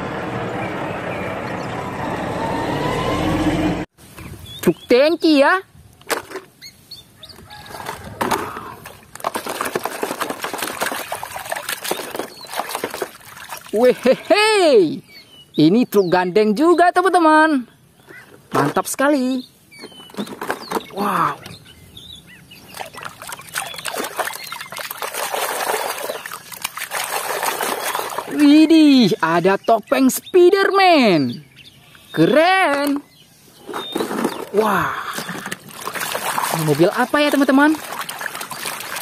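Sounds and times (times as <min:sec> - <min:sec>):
water splashing in a plastic basin: 0:07.8 - 0:14.4, 0:22.7 - 0:28.6, 0:33.7 - 0:39.0.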